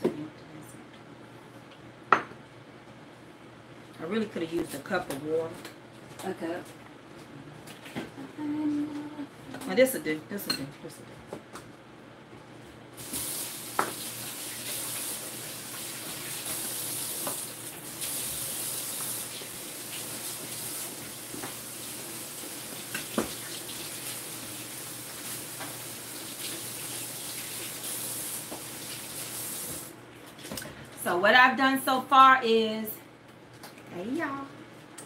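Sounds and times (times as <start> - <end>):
kitchen tap running: 13.0 - 30.0.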